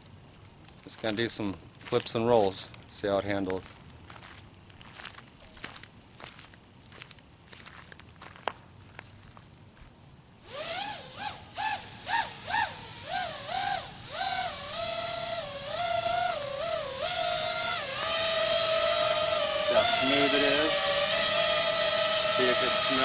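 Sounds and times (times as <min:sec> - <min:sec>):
quadcopter motors whining: 0:10.4 - 0:23.0.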